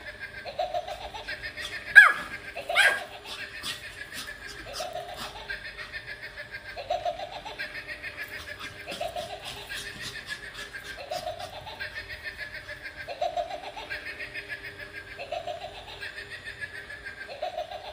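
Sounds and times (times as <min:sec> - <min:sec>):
electronic toy laughing: 0:00.0 - 0:17.9.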